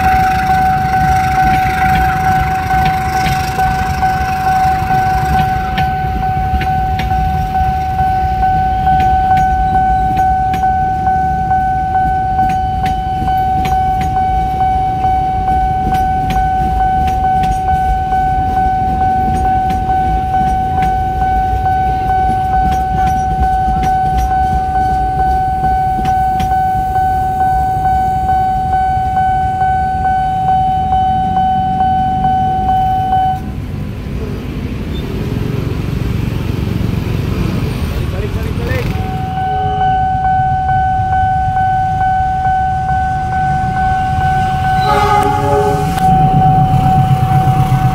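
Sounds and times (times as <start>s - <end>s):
wheels clicking over rail joints: 0.0s - 26.9s
level crossing alarm tone: 0.0s - 33.6s, 38.8s - 47.9s
train rumbling past: 0.0s - 47.9s.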